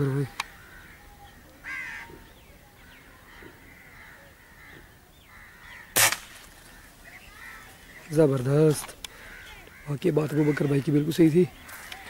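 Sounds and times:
faint birds calling: 0.0s - 12.0s
air rifle shot: 5.9s - 6.6s.

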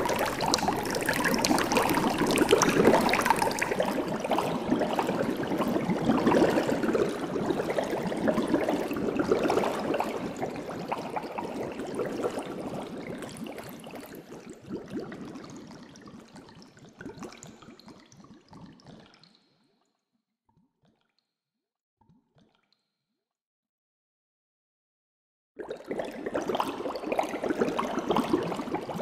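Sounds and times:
aquarium water trickling and bubbling: 0.0s - 19.6s, 25.6s - 29.0s.

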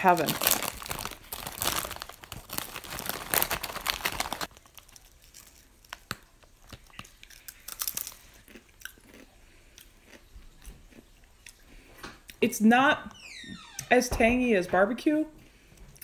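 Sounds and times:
chip bag rustling: 0.0s - 8.4s
chip crunching: 0.0s - 10.3s.

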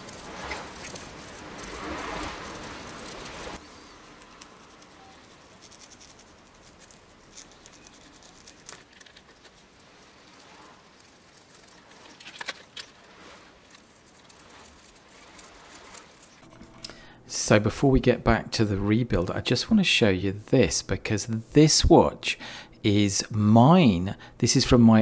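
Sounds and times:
brush scrubbing metal bracelet: 0.0s - 16.8s.

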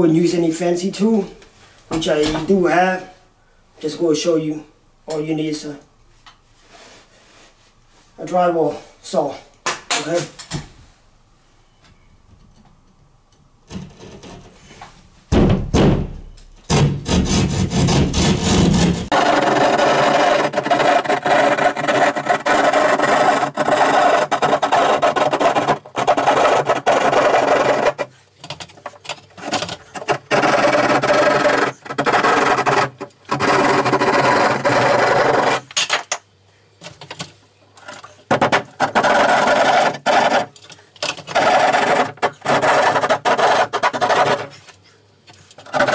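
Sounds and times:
hand saw rasping through drywall: 16.7s - 28.2s, 28.8s - 35.7s, 38.7s - 40.6s, 41.2s - 44.7s, 45.6s - 45.9s.

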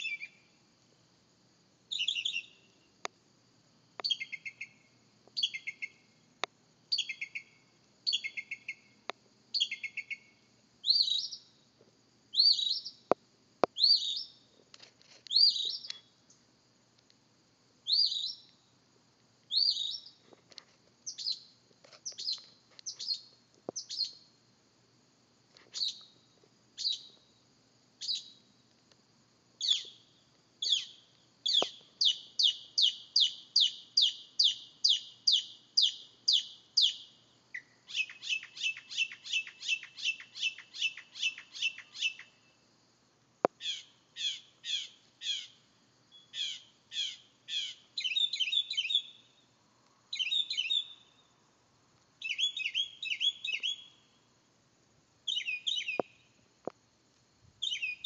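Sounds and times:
mockingbird singing: 0.0s - 0.4s, 1.9s - 2.6s, 4.0s - 4.8s, 5.4s - 6.0s, 6.9s - 7.5s, 13.8s - 14.3s, 30.6s - 42.3s, 46.2s - 49.2s, 50.1s - 51.0s, 52.2s - 54.0s, 55.3s - 56.1s, 57.6s - 58.0s.

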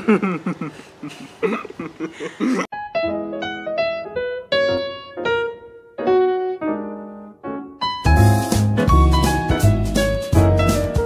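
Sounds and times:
piano music: 2.7s - 11.0s.

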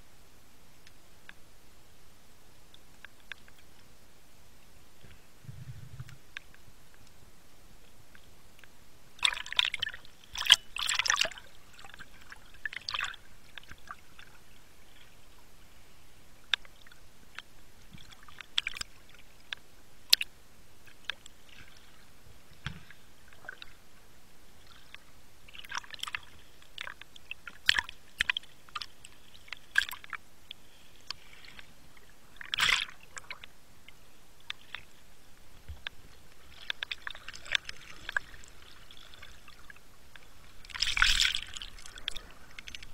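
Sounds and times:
underwater clicks and crackles: 2.7s - 3.9s, 4.6s - 7.2s, 8.1s - 15.4s, 16.4s - 23.8s, 24.6s - 42.9s
underwater bubbling and water rush: 9.2s - 42.9s.

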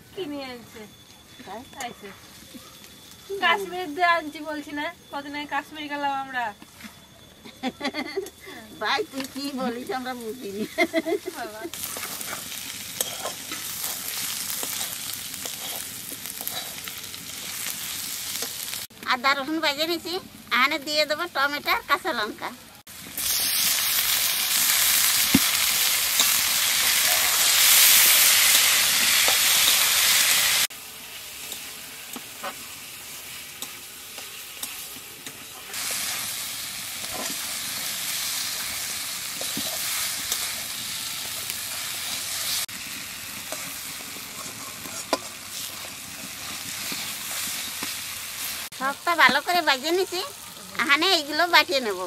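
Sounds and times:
vegetables sizzling in hot oil: 0.0s - 6.8s, 7.9s - 52.0s
metal spatula scraping pan: 11.9s - 16.9s.

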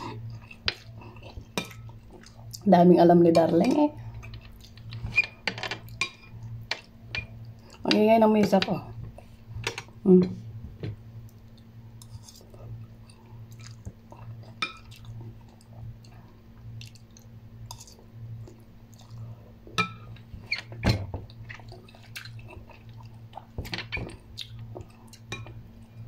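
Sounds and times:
person chewing noodles: 0.0s - 2.6s, 11.3s - 19.4s, 21.4s - 23.6s, 24.2s - 25.3s.

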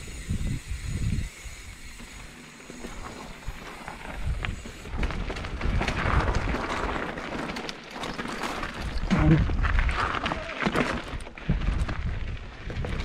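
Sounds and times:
wind buffeting microphone: 0.0s - 2.0s, 3.4s - 7.0s
crackling rattling clicks: 4.3s - 9.2s.

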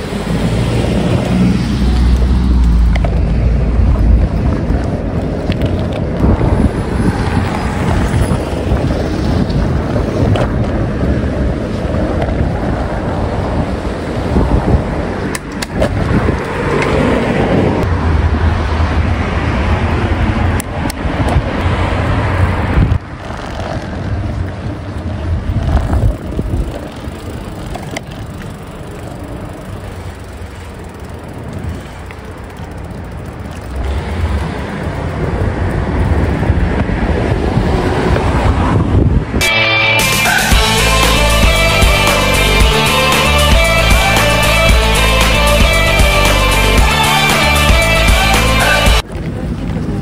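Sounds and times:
wind on microphone: 0.0s - 39.4s
bicycle tyre road noise: 0.0s - 50.0s
music: 39.4s - 49.0s.

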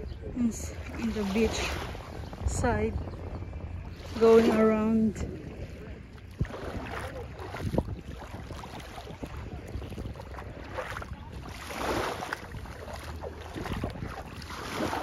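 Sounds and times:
small waves lapping: 0.0s - 15.0s
wind rumbling on microphone: 0.0s - 15.0s.

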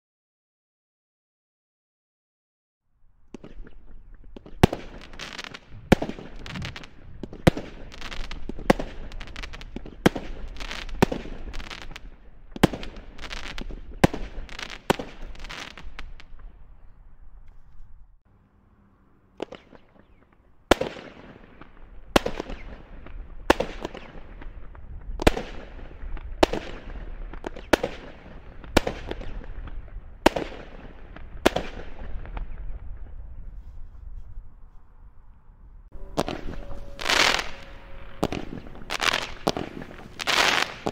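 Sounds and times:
firework bangs: 3.3s - 16.6s, 19.4s - 33.2s, 35.9s - 40.9s.

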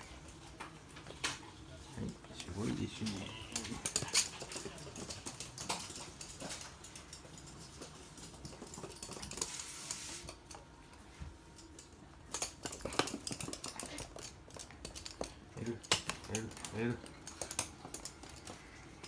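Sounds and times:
dog claws clicking: 2.4s - 9.6s, 11.5s - 19.0s.

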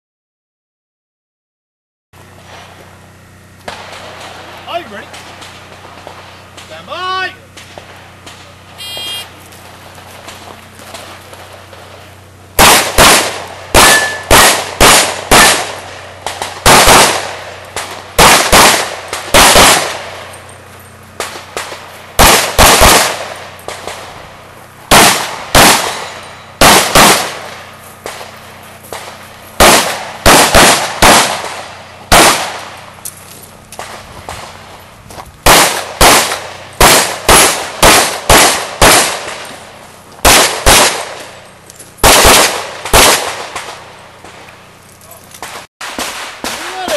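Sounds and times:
handgun shots: 12.6s - 20.0s, 21.2s - 24.0s, 24.9s - 27.4s, 28.9s - 32.6s.

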